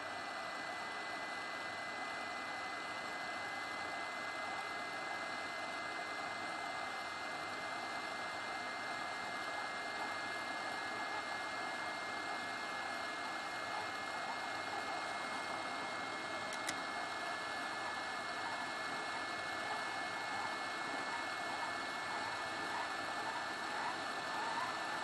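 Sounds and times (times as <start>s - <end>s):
two-tone fan whine: 0.0s - 25.0s
small click: 16.5s - 16.8s.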